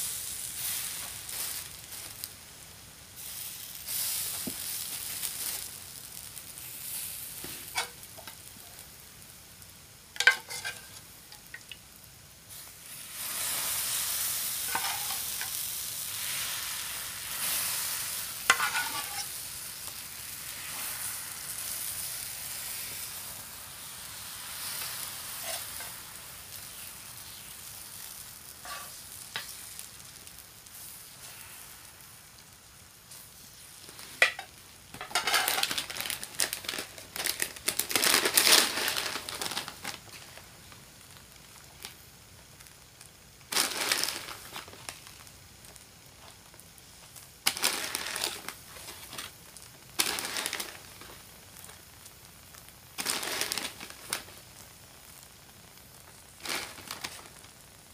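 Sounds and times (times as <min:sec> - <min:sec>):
batter sizzling: 0:00.0 - 0:57.9
crinkly rustling: 0:04.2 - 0:06.2, 0:34.9 - 0:40.5, 0:43.5 - 0:45.2, 0:47.4 - 0:49.4, 0:50.0 - 0:51.8, 0:53.0 - 0:54.5, 0:56.4 - 0:57.5.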